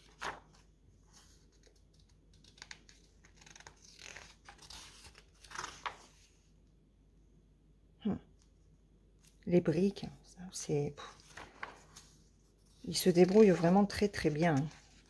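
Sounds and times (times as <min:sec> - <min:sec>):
paper rustling and crinkling: 0:00.0 - 0:06.3, 0:11.0 - 0:15.0.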